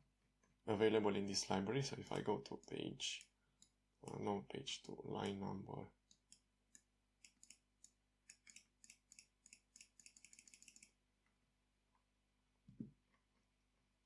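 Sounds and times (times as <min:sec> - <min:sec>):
mouse scroll wheel ticking: 0:02.0 - 0:04.2, 0:06.0 - 0:11.0.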